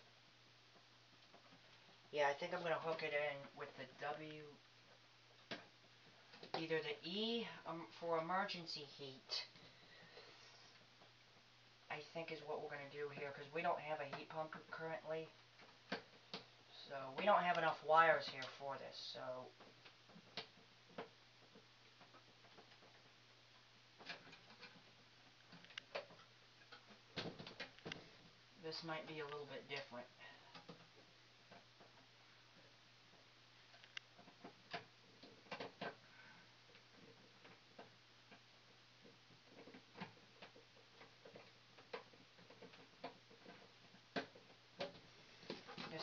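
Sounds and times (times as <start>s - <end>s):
low steady hum: 0.0s - 46.0s
small clicks and scrapes: 19.6s - 28.3s, 29.3s - 46.0s.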